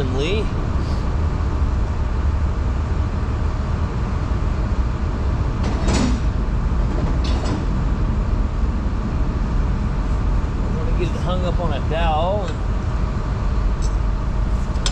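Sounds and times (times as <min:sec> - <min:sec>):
machinery rumble: 0:00.0 - 0:14.9.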